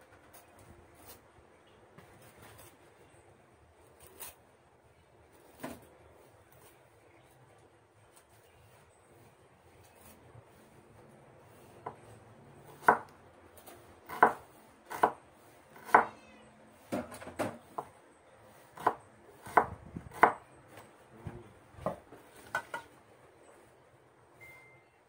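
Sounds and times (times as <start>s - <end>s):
knife chopping on wooden board: 12.7s - 13.1s, 14.1s - 15.2s, 15.8s - 16.1s, 18.8s - 20.4s.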